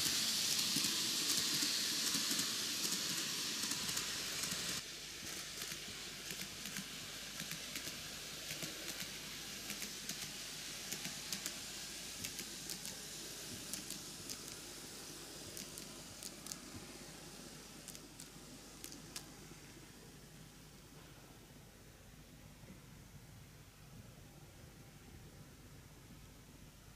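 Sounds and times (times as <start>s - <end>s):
model train wheels hissing: 0.0s - 21.0s.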